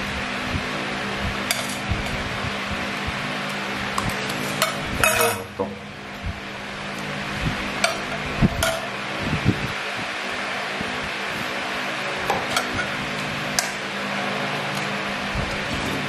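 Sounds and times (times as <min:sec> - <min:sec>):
steady background hum: 0:00.0 - 0:16.0
metal spoon clinking on tray: 0:04.6 - 0:05.5.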